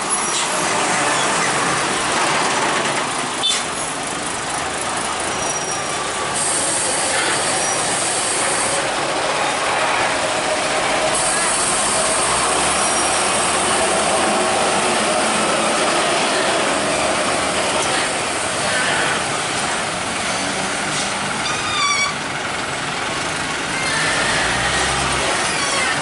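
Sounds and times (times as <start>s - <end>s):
heavy road traffic: 0.0s - 26.0s
brief high-pitched squeal: 21.4s - 22.2s, 23.8s - 26.0s.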